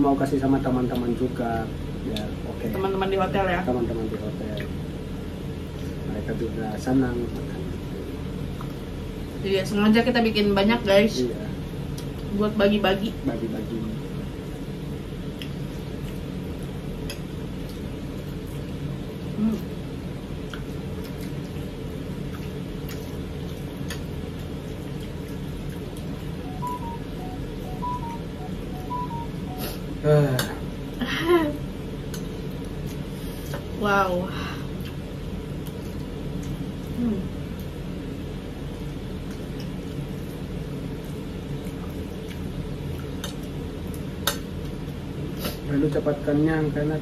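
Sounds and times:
low hum: 14.0s - 44.1s.

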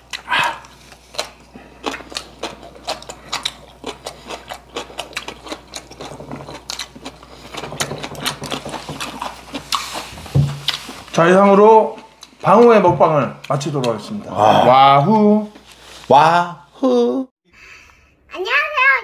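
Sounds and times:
chewing wet smacks: 0.0s - 10.0s.

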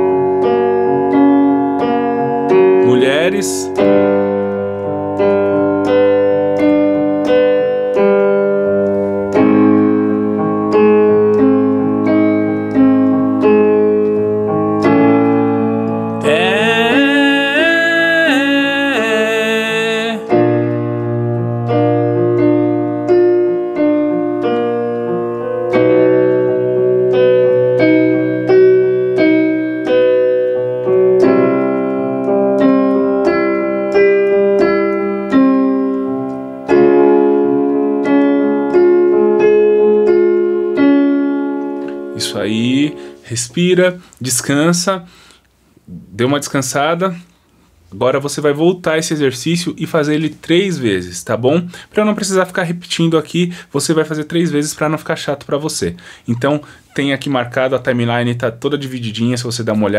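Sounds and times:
piano notes: 0.0s - 44.9s
man singing: 16.2s - 20.4s.

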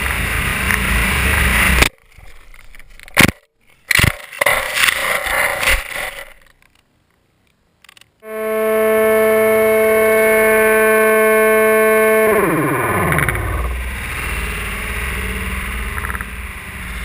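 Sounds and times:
slowed motor and propeller drone: 8.2s - 17.0s.

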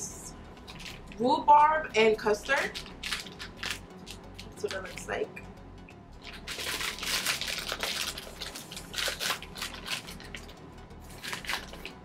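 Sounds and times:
plastic packet crinkling: 0.6s - 1.2s, 2.5s - 5.0s, 6.2s - 12.0s.

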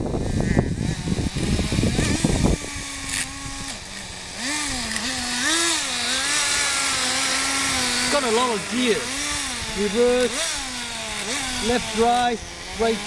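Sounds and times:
small engine rumbling and revving: 0.0s - 13.0s.

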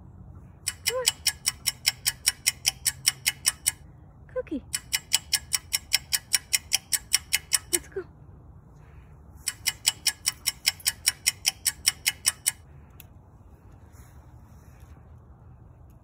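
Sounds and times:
squirrel chattering alarm call: 0.7s - 3.8s, 4.7s - 7.9s, 9.4s - 12.6s.

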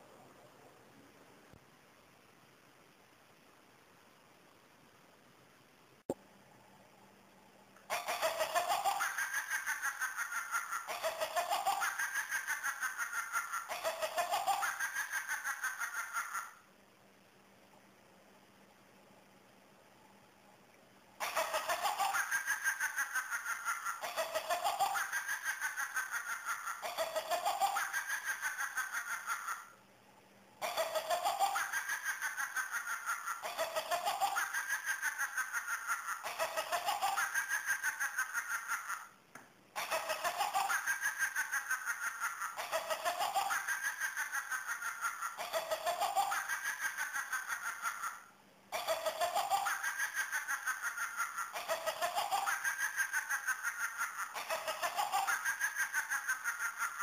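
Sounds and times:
toy witch cackling laugh: 7.9s - 16.7s, 21.2s - 29.8s, 30.6s - 57.0s.

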